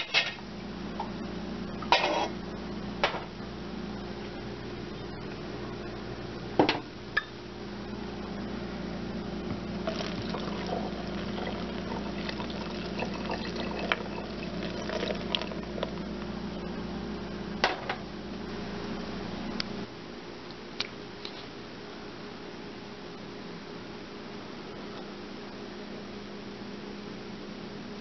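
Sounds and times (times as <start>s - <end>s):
steady low hum: 0.0s - 28.0s
liquid pouring and splashing: 9.8s - 16.0s.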